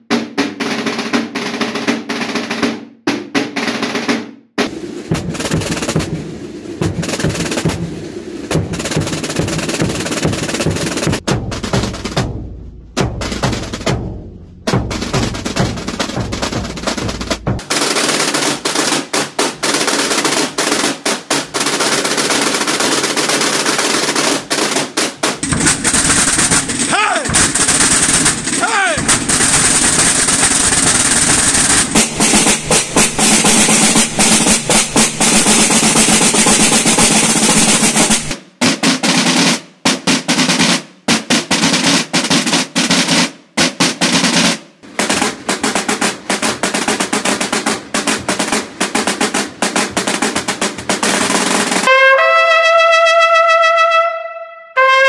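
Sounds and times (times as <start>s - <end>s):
snare drums rolling: 0.0s - 54.0s
bass drum: 10.6s - 17.6s, 25.4s - 38.3s.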